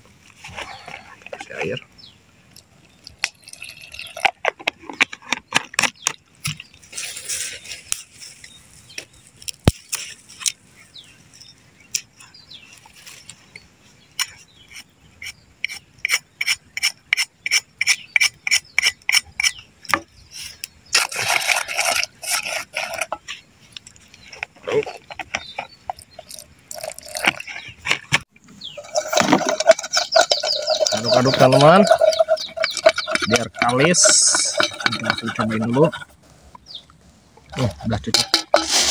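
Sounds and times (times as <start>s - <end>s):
water pouring: 3.2s - 4.4s, 26.0s - 27.5s, 28.8s - 35.4s
wooden stick scraping metal pot: 21.0s - 23.4s, 24.2s - 36.6s, 37.4s - 38.9s.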